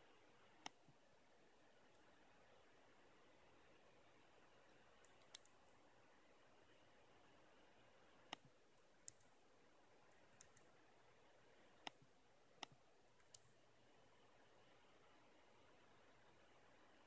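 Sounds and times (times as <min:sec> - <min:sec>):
faint sharp clicks: 0:00.4 - 0:01.0, 0:04.6 - 0:05.8, 0:08.2 - 0:09.4, 0:10.0 - 0:10.8, 0:11.6 - 0:13.6.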